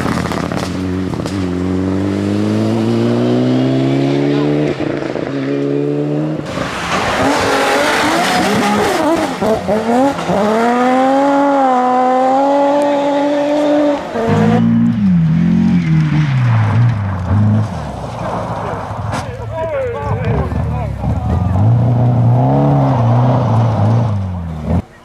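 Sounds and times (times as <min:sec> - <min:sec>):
gravel and tyre noise: 0:00.0 - 0:25.0
rally car engine revving: 0:00.0 - 0:25.0
rally car changing gear: 0:07.2 - 0:16.1.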